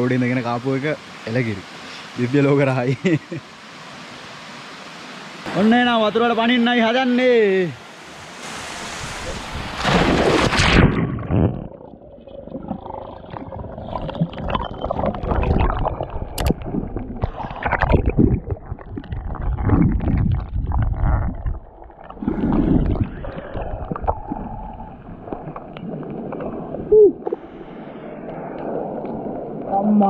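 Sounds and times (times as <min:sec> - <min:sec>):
underwater bubbles and churning: 0:08.4 - 0:29.8.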